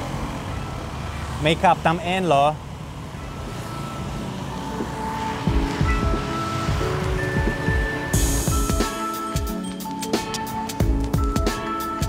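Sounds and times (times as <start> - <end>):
electronic music with kick drum: 5.5 - 12.0.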